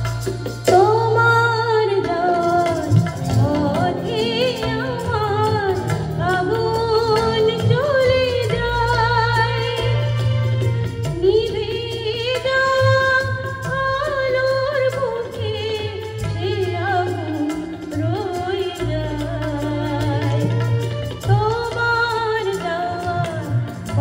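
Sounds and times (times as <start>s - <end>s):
instrumental accompaniment: 0.0s - 24.0s
woman singing with vibrato: 0.6s - 24.0s.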